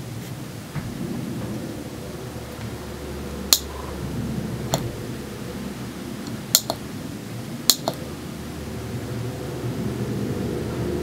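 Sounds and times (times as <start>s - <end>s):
steady low hum: 0.0s - 11.0s
push button clicking: 6.3s - 6.8s, 7.7s - 8.0s.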